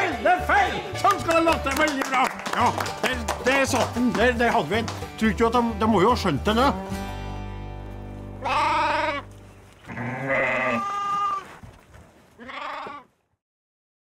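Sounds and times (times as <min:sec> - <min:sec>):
sheep bleating: 0:08.3 - 0:11.5, 0:12.4 - 0:13.1.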